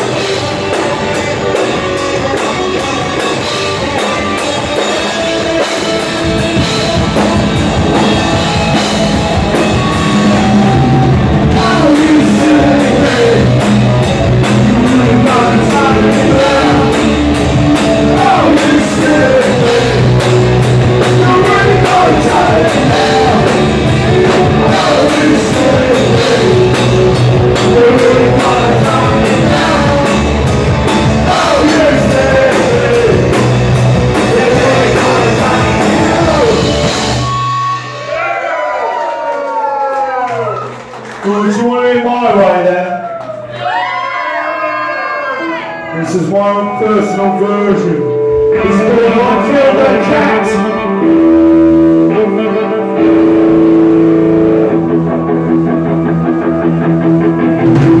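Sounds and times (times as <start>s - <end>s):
electric guitar chords ringing: 0.0s - 38.2s, 46.0s - 58.0s
punk rock band playing: 0.0s - 38.8s, 45.2s - 58.0s
man singing: 9.8s - 37.2s, 45.9s - 53.6s.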